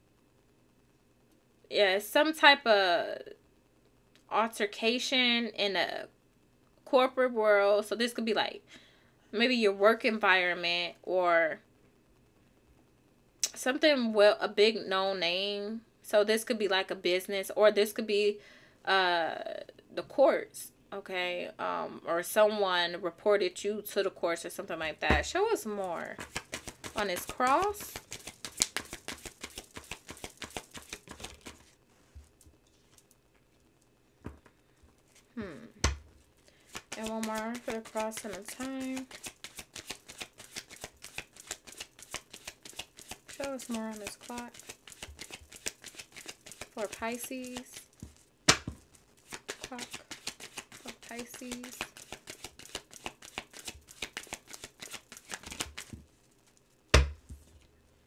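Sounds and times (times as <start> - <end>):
cards being shuffled: 25.1 - 33.1, 35.9 - 56.6.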